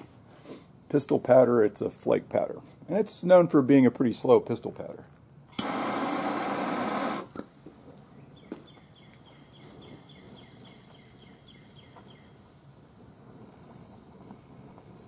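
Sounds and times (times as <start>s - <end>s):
bird chirping: 8.0s - 12.4s.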